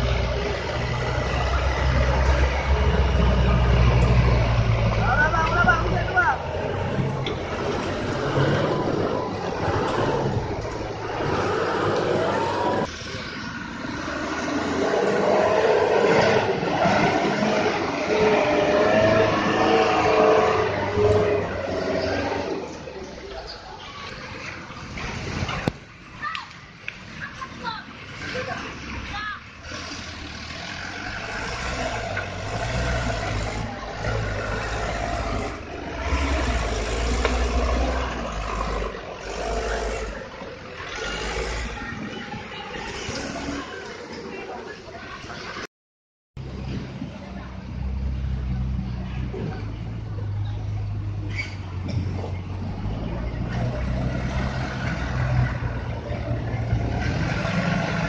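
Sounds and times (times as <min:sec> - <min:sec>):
wheel loader engine whine: 0:00.0 - 0:23.1
diesel truck engine labouring: 0:00.0 - 0:25.7, 0:27.1 - 0:45.7, 0:46.4 - 0:58.0.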